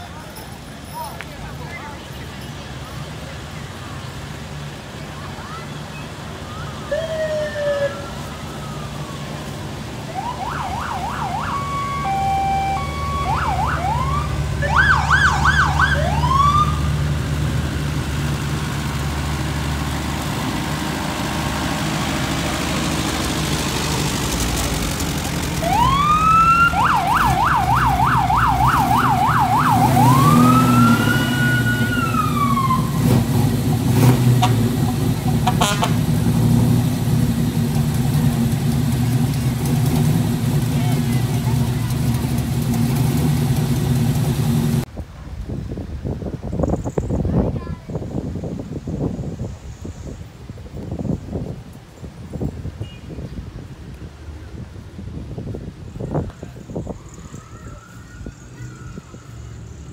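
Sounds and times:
tractor engine: 0.0 - 44.9
slow vehicle engines: 0.0 - 59.9
electronic siren wailing and yelping: 10.2 - 16.8.

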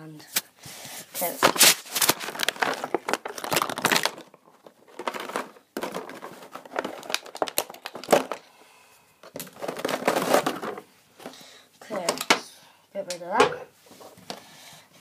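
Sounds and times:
plastic packaging crinkling: 1.2 - 8.5, 9.2 - 10.8.

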